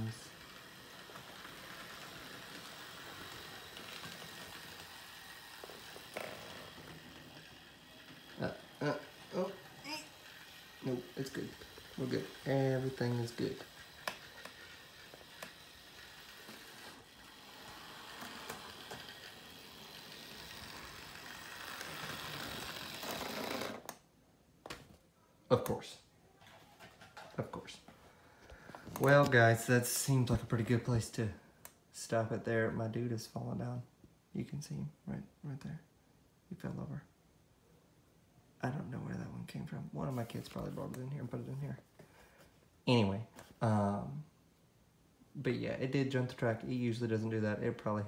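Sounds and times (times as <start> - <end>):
model train running on track: 0.0 - 23.1.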